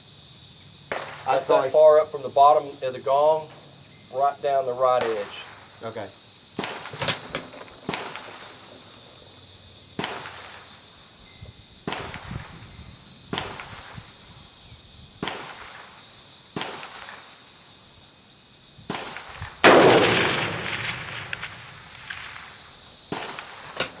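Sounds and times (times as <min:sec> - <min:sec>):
loud rifle shot: 0:18.9 - 0:24.0
faint distant rifle cracks: 0:19.2 - 0:24.0.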